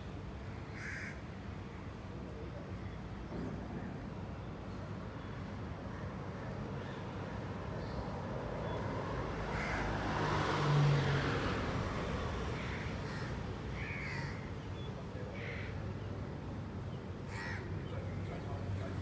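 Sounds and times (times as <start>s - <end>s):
vehicle passing: 8.4s - 13.4s.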